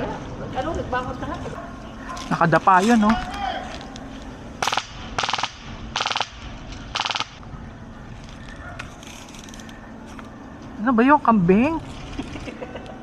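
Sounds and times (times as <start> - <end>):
airsoft rifle bursts: 4.6 - 7.4.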